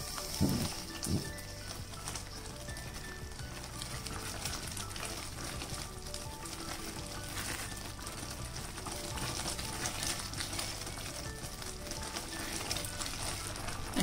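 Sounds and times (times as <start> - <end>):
mixture bubbling and sizzling in pan: 0.0 - 14.0
spatula stirring: 0.0 - 14.0.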